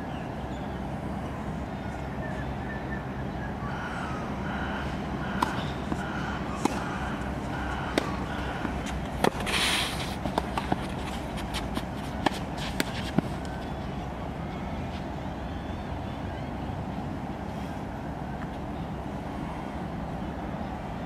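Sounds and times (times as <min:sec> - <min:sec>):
low background hum: 0:00.0 - 0:21.0
tennis ball struck by racket: 0:05.4 - 0:13.6.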